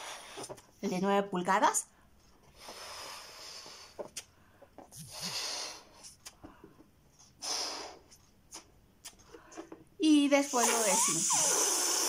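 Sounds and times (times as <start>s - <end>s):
person blowing up a balloon: 10.4s - 12.0s.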